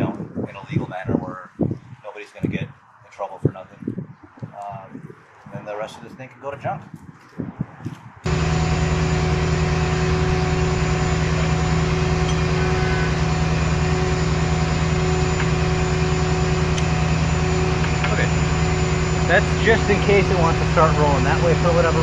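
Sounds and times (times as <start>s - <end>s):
truck engine idling: 8.3s - 22.0s.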